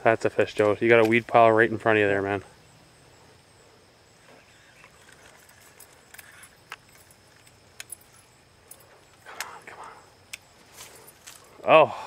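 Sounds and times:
high insect hum: 0.0 - 12.0
faint sharp clicks: 9.1 - 10.5.

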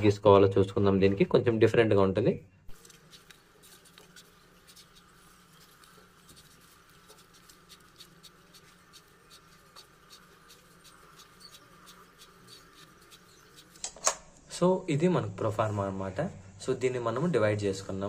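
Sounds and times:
pen scratching along ruler: 2.8 - 13.8.

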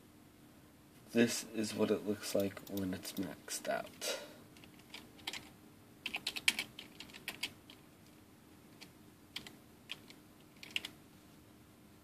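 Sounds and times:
faint steady hum: 0.0 - 12.0
keyboard keys clicking: 4.6 - 7.8, 8.8 - 11.0.

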